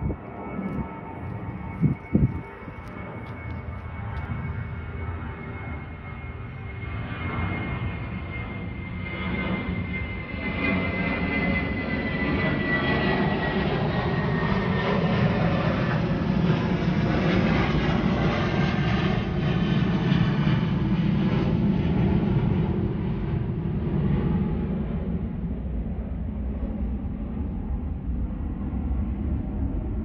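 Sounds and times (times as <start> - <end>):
aircraft engine drone overhead: 0.0 - 30.0.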